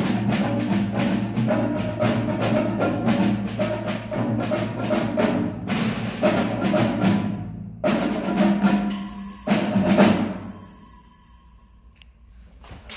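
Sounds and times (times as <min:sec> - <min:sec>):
percussion ensemble striking: 0:00.0 - 0:11.9.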